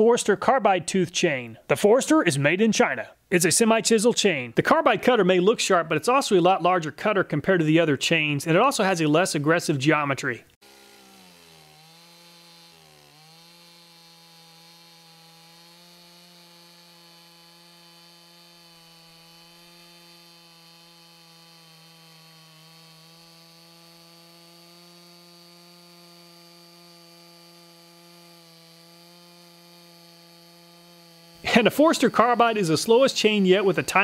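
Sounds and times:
chainsaw cutting wood: 0:00.0 - 0:00.6, 0:08.1 - 0:34.0.

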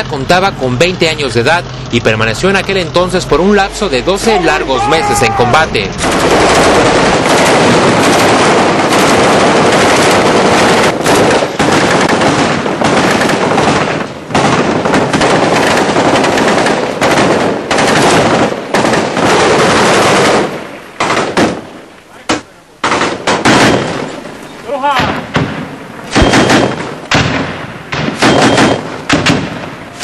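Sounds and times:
automatic gunfire: 0:06.0 - 0:21.7, 0:22.3 - 0:24.2, 0:25.0 - 0:30.0.

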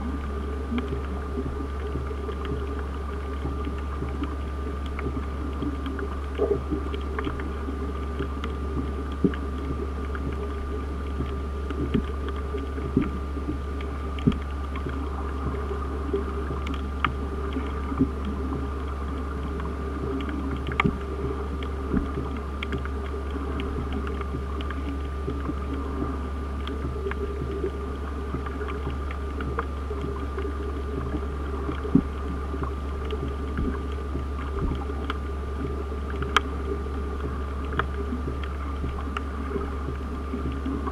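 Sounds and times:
low underwater drone: 0:00.0 - 0:40.9
short clicks and crackles: 0:00.0 - 0:40.9.

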